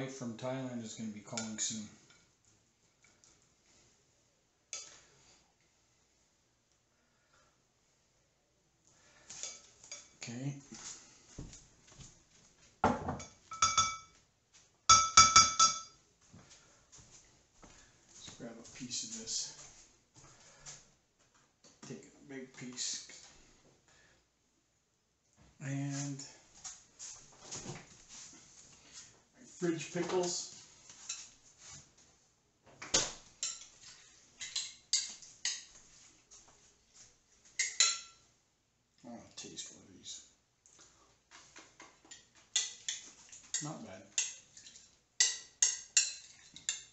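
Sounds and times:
dishes and cutlery clinking: 0:09.3 - 0:10.2, 0:12.9 - 0:14.2, 0:14.9 - 0:16.0, 0:33.4 - 0:35.8, 0:37.6 - 0:38.3, 0:41.5 - 0:46.9.

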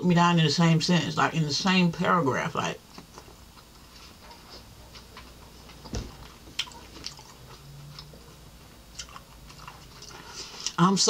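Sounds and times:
low hum: 0:02.8 - 0:10.8
person chewing food: 0:02.9 - 0:10.8.

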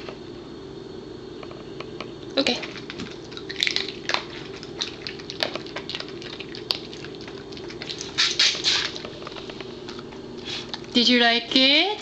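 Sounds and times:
dog crunching a chew: 0:02.7 - 0:10.9.

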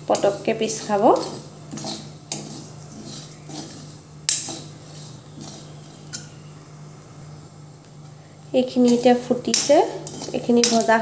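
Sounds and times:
metal spoon scraping a pan: 0:00.1 - 0:06.5, 0:08.6 - 0:11.0.

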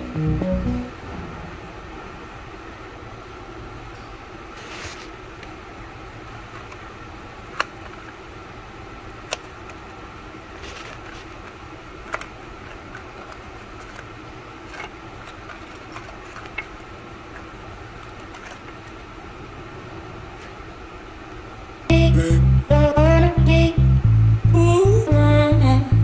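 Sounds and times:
steady hum: 0:00.0 - 0:26.0.

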